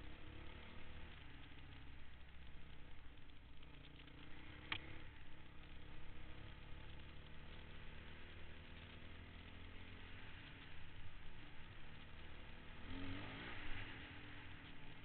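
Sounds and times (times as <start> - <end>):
dirt bike engine running: 0.0 - 15.0.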